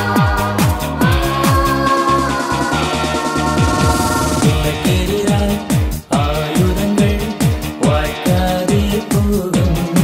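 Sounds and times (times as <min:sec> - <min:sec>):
falling bass sweep: 0:02.9 - 0:06.2.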